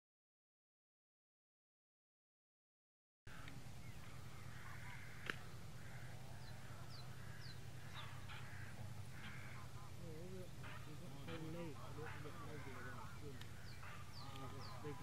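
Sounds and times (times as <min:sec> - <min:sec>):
birds calling harshly: 0:03.3 - 0:15.0
steady low hum: 0:03.3 - 0:15.0.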